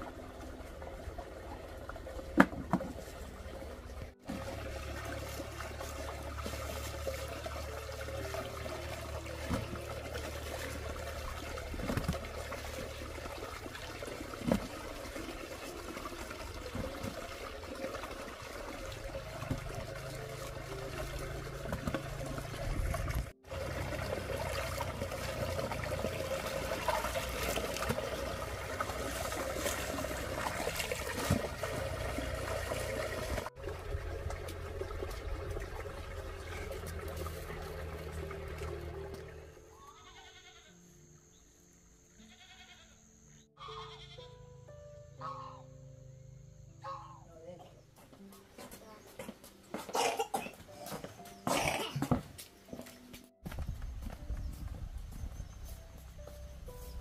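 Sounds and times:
water trickling and splashing: 0:00.0 - 0:40.1.

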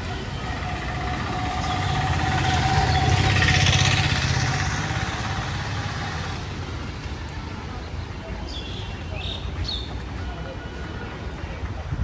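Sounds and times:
vehicle engine passing by: 0:00.0 - 0:06.8.

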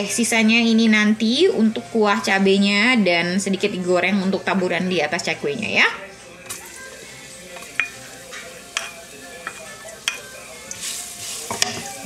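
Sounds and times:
garlic sizzling in hot oil: 0:06.5 - 0:12.0
spatula tapping and scraping pan: 0:07.5 - 0:12.0.

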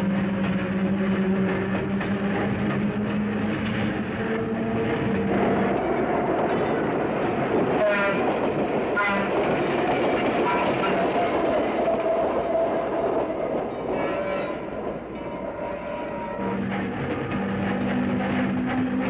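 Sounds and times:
railcar wheels and motors rumbling: 0:00.0 - 0:19.0
railcar horn toots: 0:07.8 - 0:08.3, 0:09.0 - 0:09.4, 0:10.4 - 0:11.3, 0:13.9 - 0:16.6.

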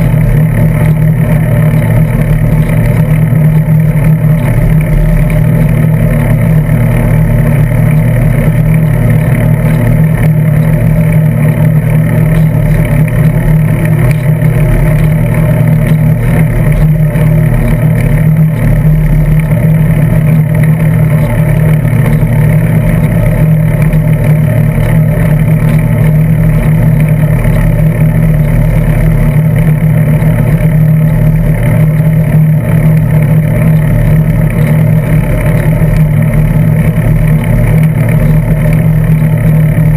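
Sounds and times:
bicycle tyres rumbling on asphalt: 0:00.0 - 0:39.9.

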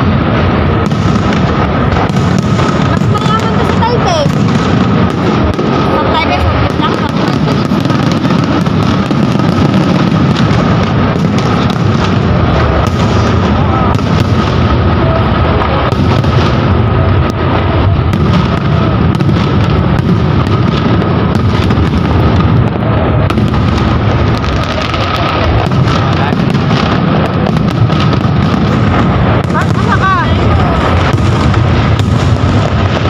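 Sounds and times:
fireworks booming and banging: 0:00.0 - 0:33.0.

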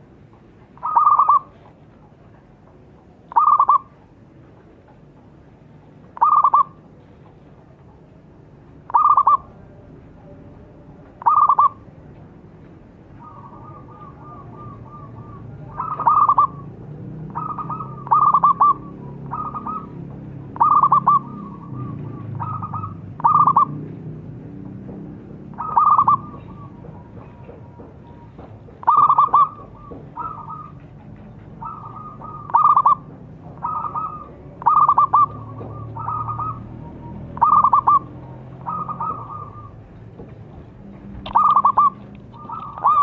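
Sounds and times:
dove cooing: 0:00.8 - 0:02.3, 0:03.2 - 0:04.1, 0:06.1 - 0:06.9, 0:08.9 - 0:09.8, 0:11.2 - 0:12.0, 0:13.1 - 0:24.0, 0:25.3 - 0:40.0, 0:41.2 - 0:43.0.

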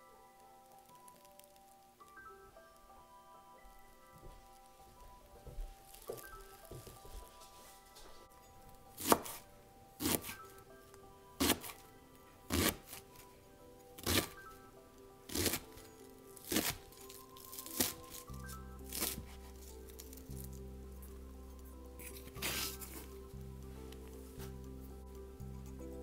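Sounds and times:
background music: 0:00.0 - 0:26.0
knife cutting greens on board: 0:09.0 - 0:09.4, 0:11.4 - 0:11.8, 0:12.5 - 0:13.0, 0:14.0 - 0:14.4, 0:15.3 - 0:15.7.

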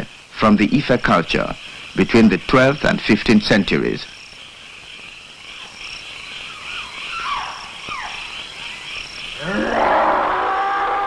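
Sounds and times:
insects chirping: 0:00.0 - 0:11.0
falling whistled calls: 0:06.4 - 0:11.0.

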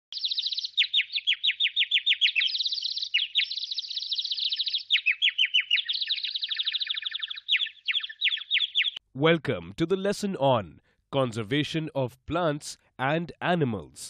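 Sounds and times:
birds chirping: 0:00.1 - 0:09.0.

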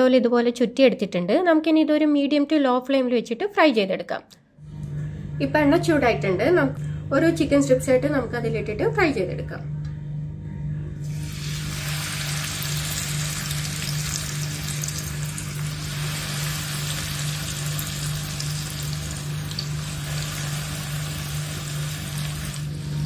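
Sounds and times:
food deep-frying in hot oil: 0:11.1 - 0:23.0.

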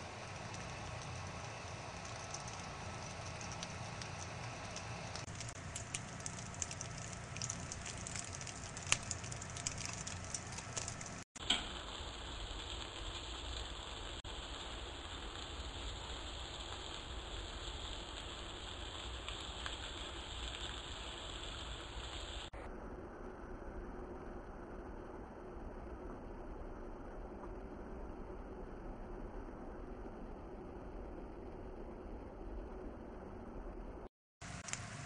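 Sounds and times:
bread sizzling in a frying pan: 0:00.0 - 0:22.6, 0:34.4 - 0:35.0.

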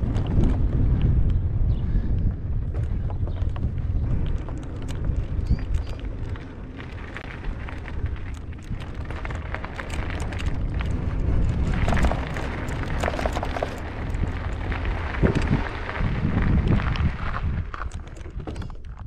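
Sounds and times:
wind buffeting microphone: 0:00.0 - 0:19.0
small clicks: 0:02.8 - 0:15.6.

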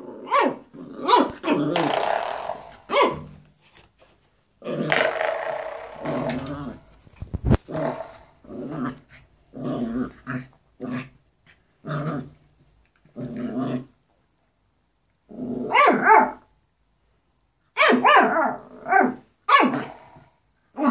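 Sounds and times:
dog growling: 0:04.6 - 0:06.9, 0:07.5 - 0:11.2, 0:11.8 - 0:12.4, 0:13.2 - 0:13.9.

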